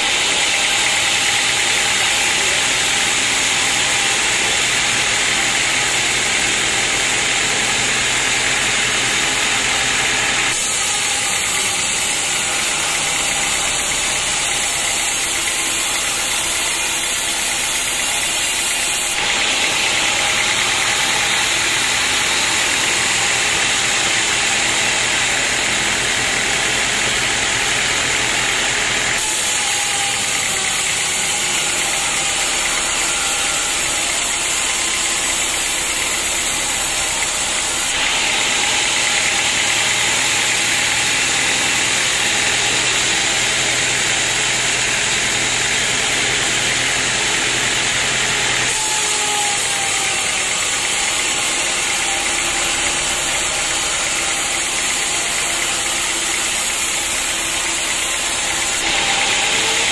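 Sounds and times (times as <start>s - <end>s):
saw blade hissing through wood: 0.0s - 59.9s
sawmill motor drone: 0.0s - 59.9s.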